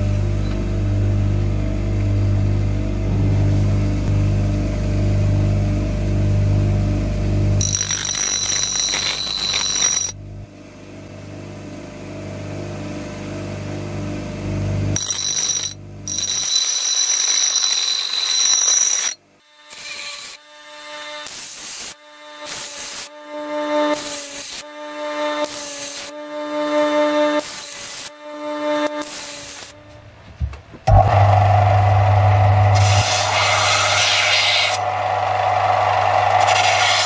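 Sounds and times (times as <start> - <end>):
bench grinder motor hum: 0.0 - 10.2, 13.9 - 19.2, 30.9 - 37.0
high-pitched ringing grind of steel: 7.6 - 10.2, 15.0 - 20.4, 21.2 - 29.8, 30.9 - 37.0.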